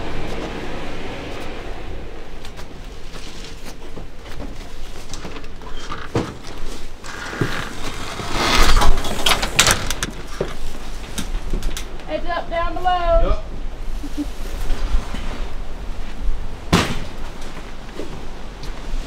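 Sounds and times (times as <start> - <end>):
rush of noise: 0.0 - 3.4.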